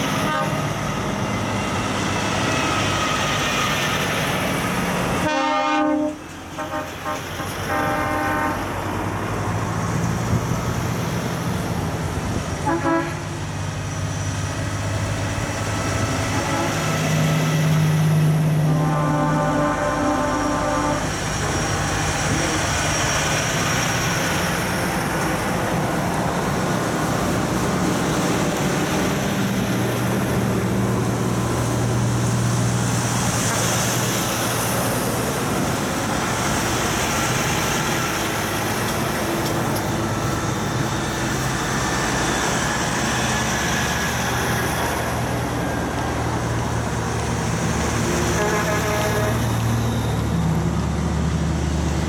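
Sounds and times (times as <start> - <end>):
diesel trucks driving past: 0.0 - 52.0.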